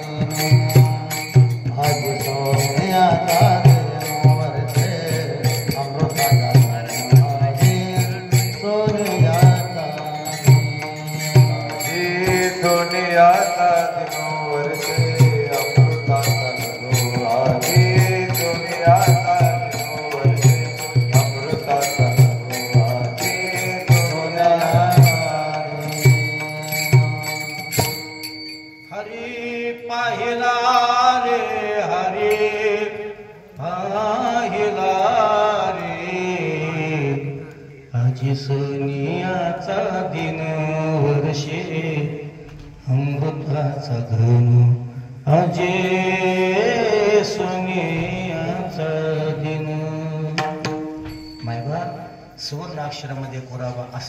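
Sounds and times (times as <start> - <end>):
hand cymbals clashing: 0.0 - 29.9, 50.2 - 53.0
man singing devotional melody: 0.0 - 54.0.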